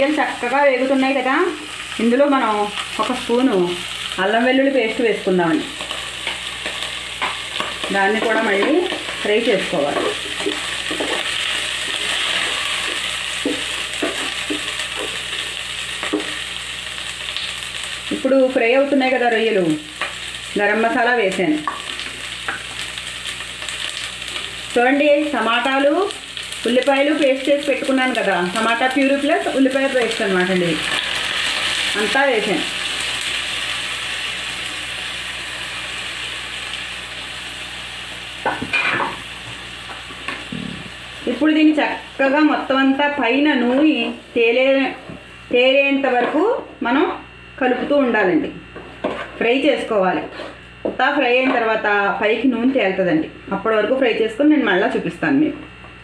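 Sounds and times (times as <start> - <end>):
prawns sizzling in hot oil: 0.0 - 45.5
spatula knocking and scraping pot: 12.8 - 15.2.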